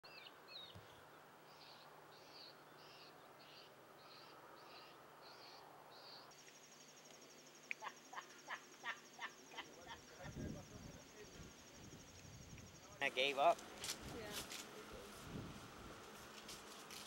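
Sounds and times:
bird calls: 0.1s - 13.0s
high insect trill: 5.3s - 17.0s.

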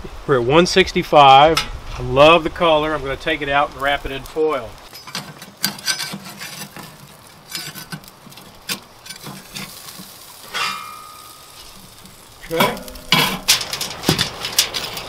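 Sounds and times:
metal spatula scraping grill grate: 4.8s - 15.0s
metal tongs clattering on grate: 4.9s - 15.0s.

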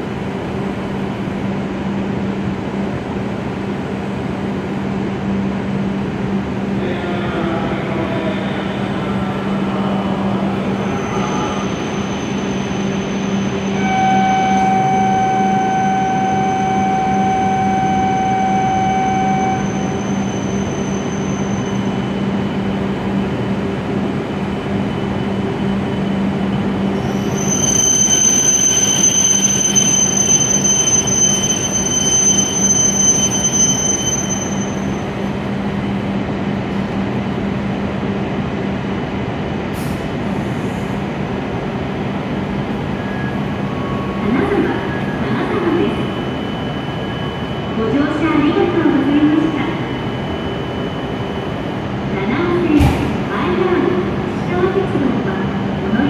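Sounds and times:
train low hum: 0.0s - 56.0s
high-pitched brake squeal: 10.8s - 22.2s, 26.8s - 35.2s, 43.0s - 51.6s.

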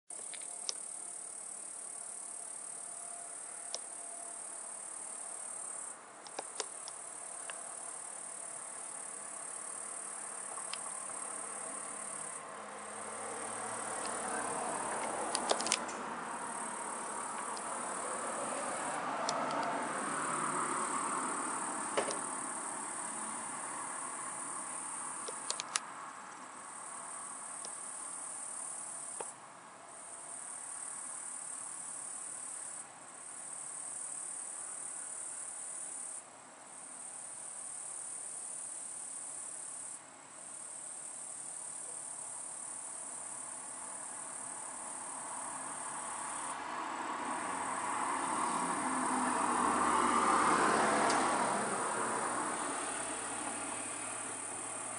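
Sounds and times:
crickets trilling: 0.1s - 54.9s
distant traffic rumble: 0.2s - 31.8s, 42.0s - 54.9s
sharp clicks: 6.2s - 7.6s, 15.0s - 16.0s, 25.2s - 25.8s.

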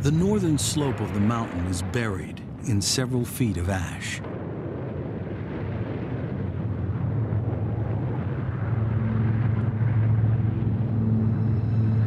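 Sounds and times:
volcano rumble: 0.0s - 12.0s
low droning note: 7.0s - 12.0s.

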